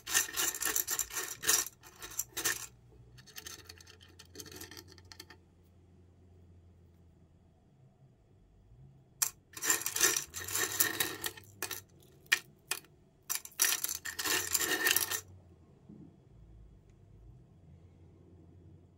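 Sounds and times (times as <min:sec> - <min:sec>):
metal screws clinking and rattling: 0:00.0 - 0:05.4, 0:09.2 - 0:15.2.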